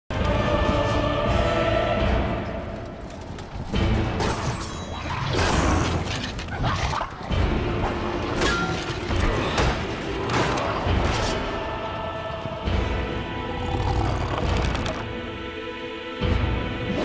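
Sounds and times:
film music: 0:00.1 - 0:17.0.

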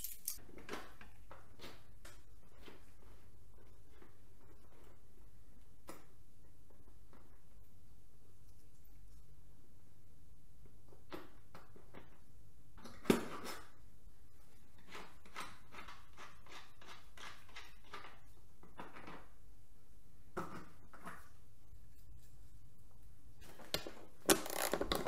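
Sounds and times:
tools and hard parts clicking: 0:00.0 - 0:00.4.

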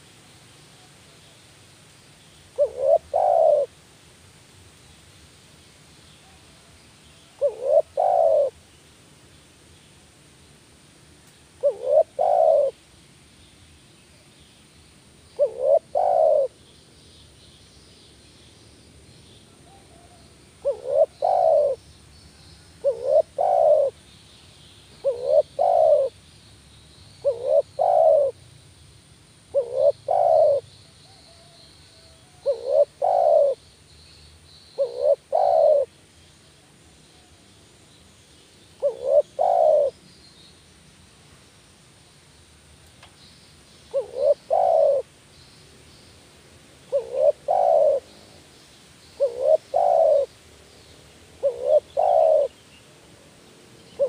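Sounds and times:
dove cooing: 0:02.6 - 0:03.7, 0:07.4 - 0:08.6, 0:11.6 - 0:12.8, 0:15.4 - 0:16.6, 0:19.6 - 0:21.8, 0:22.8 - 0:24.0, 0:25.0 - 0:26.2, 0:27.2 - 0:28.4, 0:29.5 - 0:33.6, 0:34.8 - 0:35.9, 0:38.8 - 0:40.0, 0:43.9 - 0:45.1, 0:46.9 - 0:48.4, 0:49.2 - 0:50.3, 0:51.4 - 0:52.6
faint high chirping: 0:29.5 - 0:41.0.

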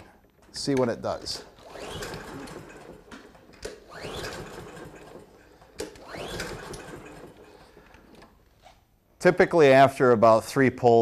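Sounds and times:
lawn mower recoil starter pulls: 0:00.4 - 0:08.4.

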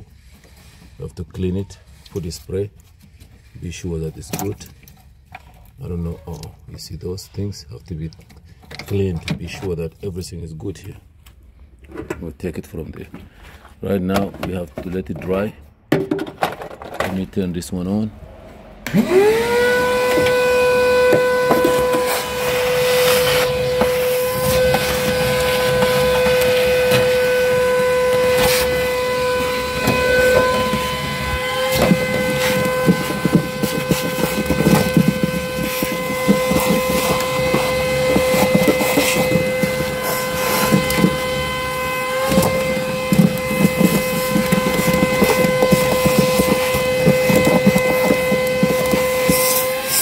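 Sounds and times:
vacuum cleaner whining: 0:18.8 - 0:50.0
brush scrubbing sheet metal: 0:19.4 - 0:50.0.

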